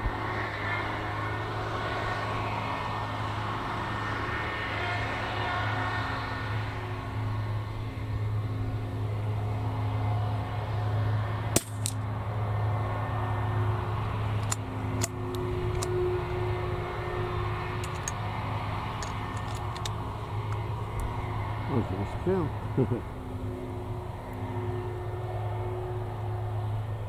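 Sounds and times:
steady low hum: 0.0 - 27.0
rifle shot: 11.6 - 11.9.

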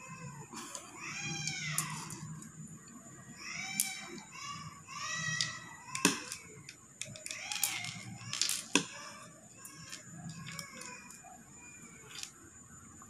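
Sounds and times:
faint high whimpering cries: 0.0 - 2.5.

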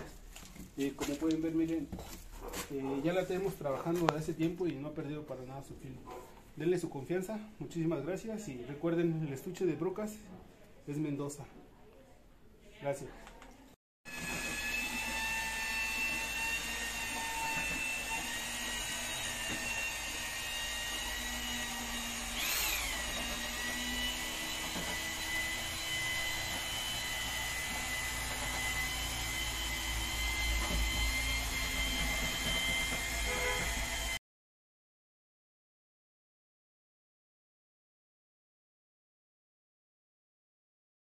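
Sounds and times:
motor running with high whine: 14.2 - 34.2.

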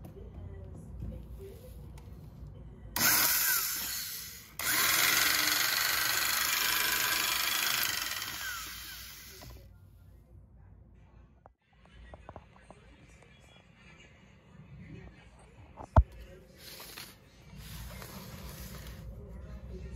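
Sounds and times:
circular saw motor whining: 3.0 - 9.6.

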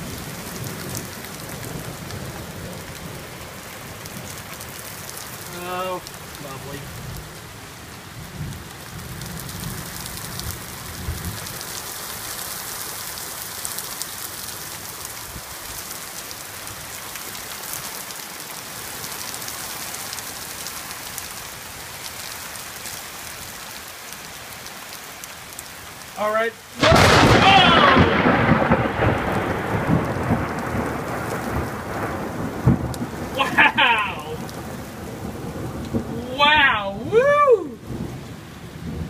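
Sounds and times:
heavy rain on wooden deck: 0.0 - 39.0
low rumble of thunder: 8.1 - 11.6, 26.8 - 36.2, 37.8 - 39.0.

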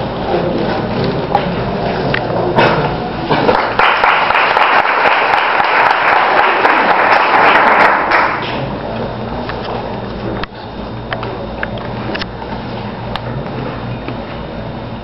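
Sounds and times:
audience applauding: 3.5 - 8.5.

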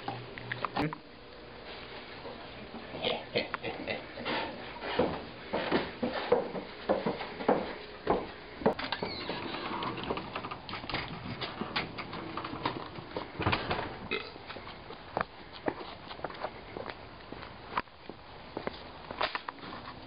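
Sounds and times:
footsteps on a hard floor: 4.3 - 8.8.

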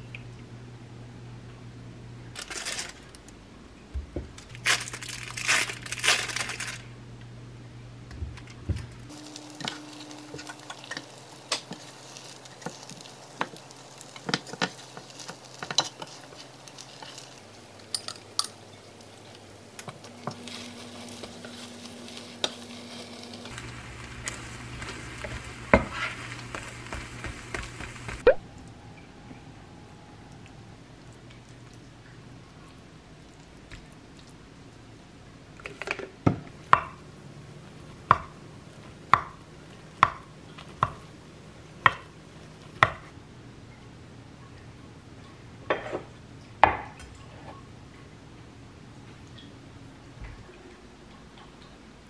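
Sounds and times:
crinkling: 2.3 - 3.4, 4.2 - 7.0, 8.3 - 28.3
egg sizzling in a pan: 9.1 - 28.4
spatula tapping and scraping pan: 9.6 - 17.2, 24.1 - 28.2.

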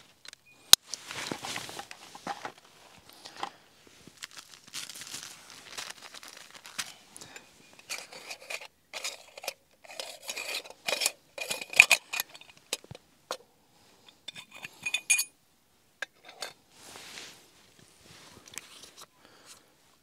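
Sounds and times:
metal cups clinking and scraping: 7.2 - 13.0, 14.0 - 15.3, 16.0 - 16.6.

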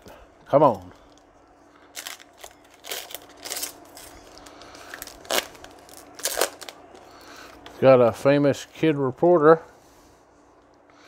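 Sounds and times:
foil wrapper tearing and crinkling: 1.9 - 6.8.

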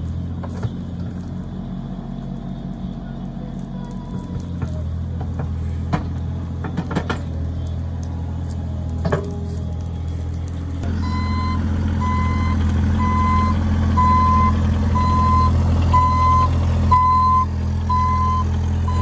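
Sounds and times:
excavator diesel engine running: 0.0 - 19.0
travel alarm beeping: 11.0 - 19.0.

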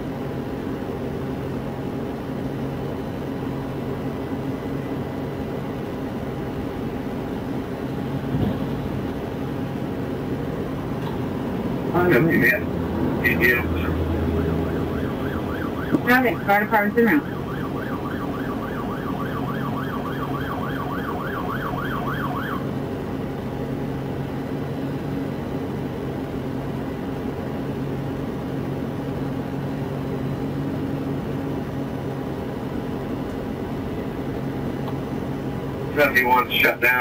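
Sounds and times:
steady low hum: 0.0 - 37.0
siren yelp: 13.2 - 22.7.

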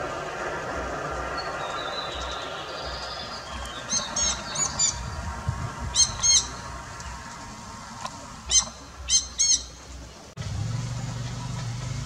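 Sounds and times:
parakeets squawking: 5.9 - 6.7.

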